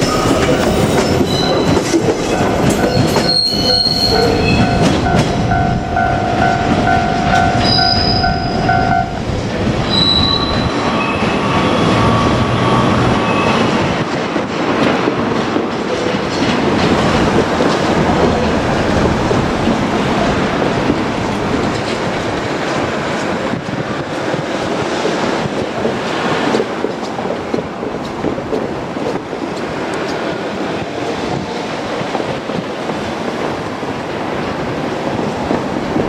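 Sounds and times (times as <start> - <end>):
train wheels squealing: 0.0 - 5.6, 7.4 - 9.0, 9.8 - 13.8
train wheels clacking: 0.0 - 36.0
level crossing bell ringing: 0.2 - 9.2.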